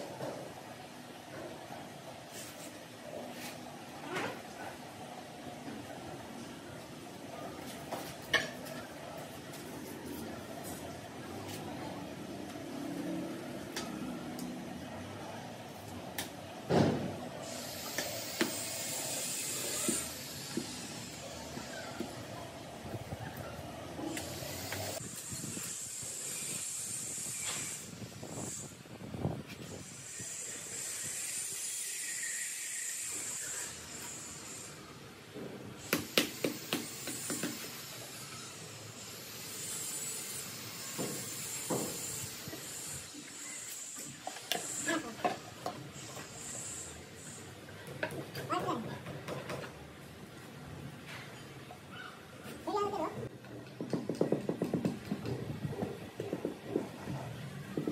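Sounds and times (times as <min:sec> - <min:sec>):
steady background noise: 0:00.0 - 0:57.9
thin hiss: 0:17.4 - 0:21.9, 0:24.1 - 0:28.8, 0:29.6 - 0:35.0, 0:35.8 - 0:47.6.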